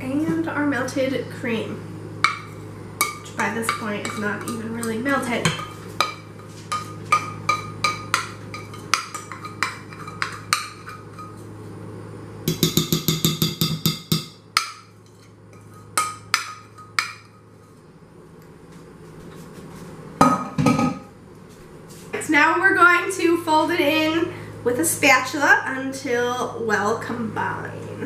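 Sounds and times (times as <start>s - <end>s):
steady low hum: 0.0s - 28.0s
metal spoon scraping a bowl: 2.4s - 11.5s, 14.9s - 17.8s.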